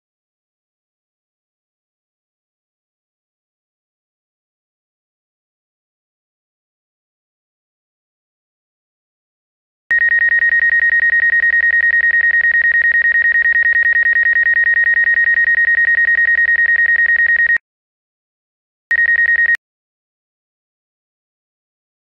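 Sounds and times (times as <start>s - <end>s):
rapid high-pitched beeps: 9.9s - 17.6s, 18.9s - 19.6s.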